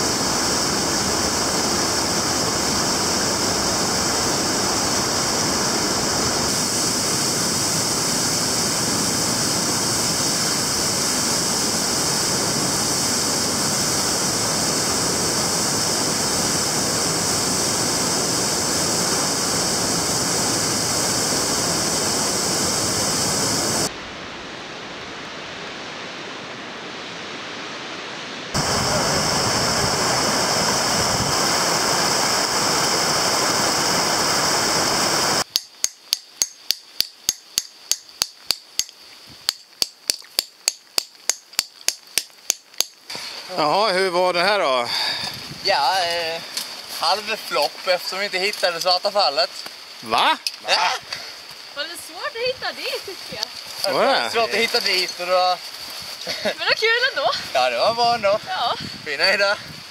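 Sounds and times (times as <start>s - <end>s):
falling water rushing: 0.0s - 35.5s, 37.5s - 59.9s
hammer striking metal: 35.5s - 38.9s.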